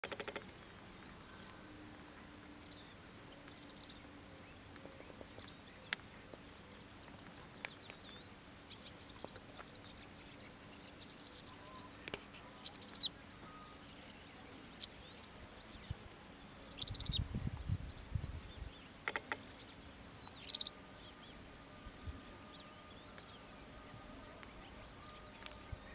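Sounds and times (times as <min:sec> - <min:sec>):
steady low hum: 0:00.2 - 0:25.9
lark chirping and trilling: 0:16.7 - 0:17.3, 0:19.1 - 0:20.8.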